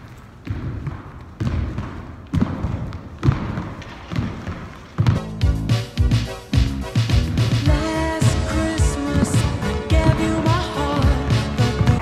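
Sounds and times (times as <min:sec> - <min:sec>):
feet thudding on wooden floor: 0:00.0 - 0:07.6, 0:08.3 - 0:12.0
feet shuffling: 0:00.0 - 0:12.0
music: 0:05.1 - 0:12.0.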